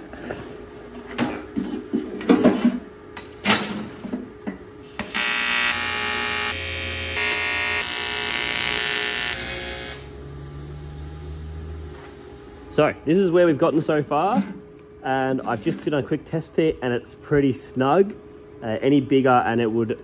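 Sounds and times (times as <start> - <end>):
welding arc buzzing: 4.8 - 12.7.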